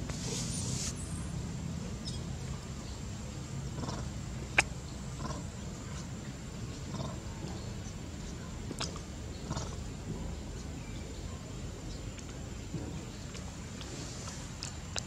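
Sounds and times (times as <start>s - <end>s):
monkey grunting calls: 3.8s - 5.5s.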